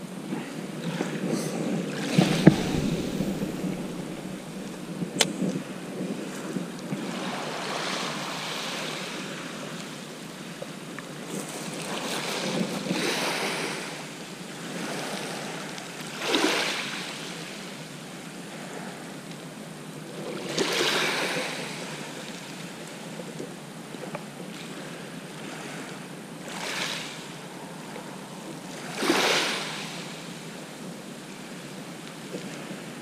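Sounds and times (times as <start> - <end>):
sea waves breaking on shore: 1.9 - 5.6, 25.4 - 30.4.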